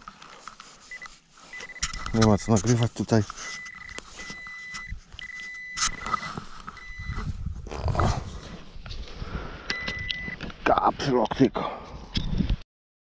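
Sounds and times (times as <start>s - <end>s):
probe scraping through sand: 0.0s - 9.2s
pinpointer high alarm tone: 3.4s - 7.3s, 9.7s - 10.4s.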